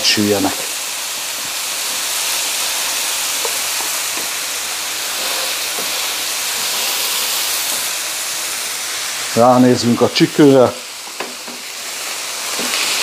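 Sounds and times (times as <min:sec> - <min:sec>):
meat sizzling on a griddle: 0:00.0 - 0:13.0.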